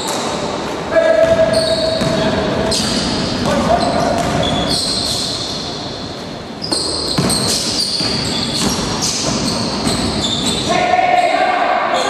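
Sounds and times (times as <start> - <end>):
sneakers squeaking on wooden floor: 0.9 - 11.3
basketball bouncing: 1.2 - 4.7, 6.7 - 10.3.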